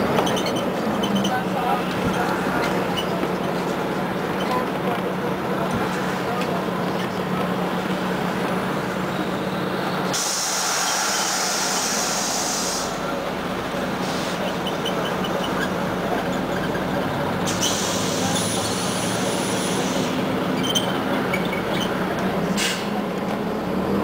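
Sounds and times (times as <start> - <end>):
bus engine humming: 0.0 - 24.0
compressed air hissing: 10.1 - 13.0.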